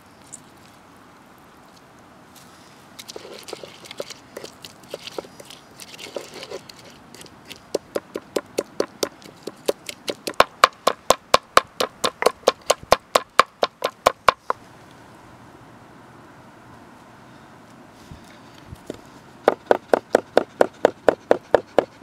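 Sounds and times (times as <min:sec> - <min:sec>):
pestle crushing and grinding: 0:03.0 - 0:14.5
pestle pounding in mortar: 0:07.5 - 0:14.4, 0:19.5 - 0:22.0.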